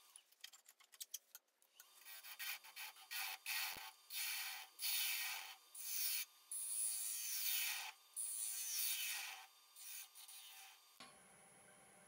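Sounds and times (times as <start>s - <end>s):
gouge hissing cuts on wood: 2.1s - 10.8s.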